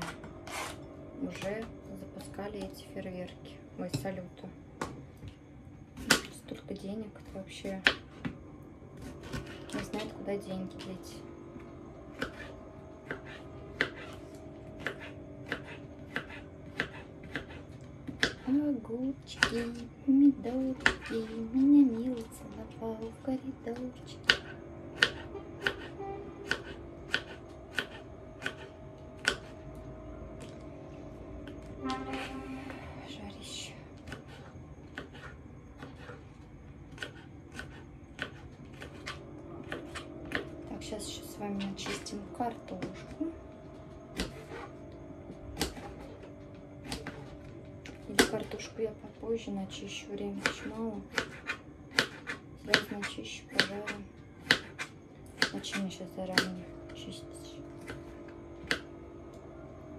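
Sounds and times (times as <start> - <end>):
knife chopping on cutting board: 12.2 - 14.2, 14.8 - 18.4, 24.2 - 29.5, 50.4 - 56.5.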